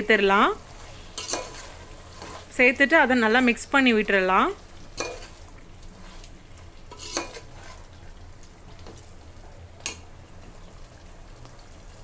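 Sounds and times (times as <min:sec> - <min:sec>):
low frying sizzle: 0:00.0 - 0:12.0
spoon stirring in a pot: 0:00.7 - 0:02.5, 0:04.9 - 0:09.1.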